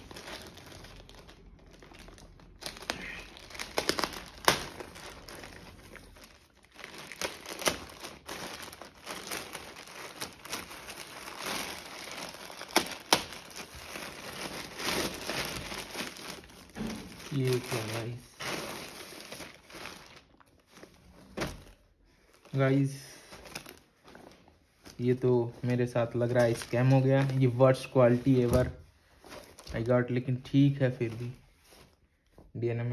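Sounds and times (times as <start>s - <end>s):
plastic bag tearing: 0.0s - 21.8s, 25.7s - 28.7s
plastic bags crinkling: 0.0s - 32.0s.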